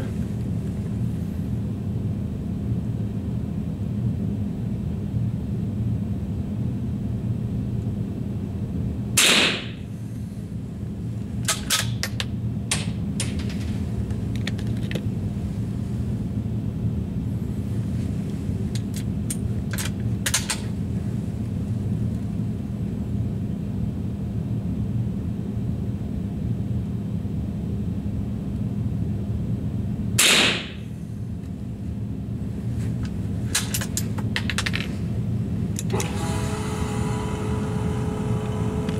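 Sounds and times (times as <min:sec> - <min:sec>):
steady low hum: 0:00.0 - 0:38.9
rifle shots: 0:09.2 - 0:09.8, 0:30.2 - 0:30.8.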